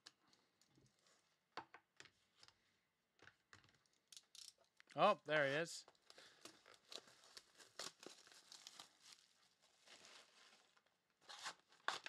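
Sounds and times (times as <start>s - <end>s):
plastic wrap crinkling and tearing: 5.9s - 12.0s.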